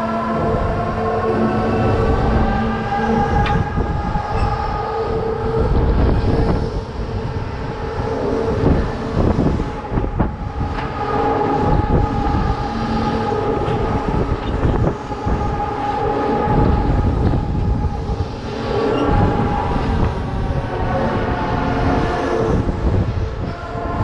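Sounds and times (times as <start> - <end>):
heavy low rumble: 0.0 - 24.0
wind noise on microphone: 0.0 - 24.0.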